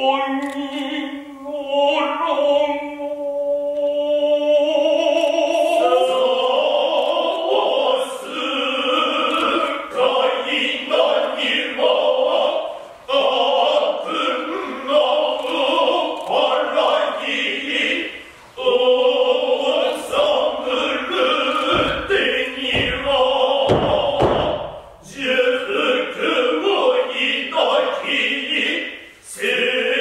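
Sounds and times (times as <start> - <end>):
men chanting in unison: 4.0 - 30.0
low thuds: 21.4 - 25.0.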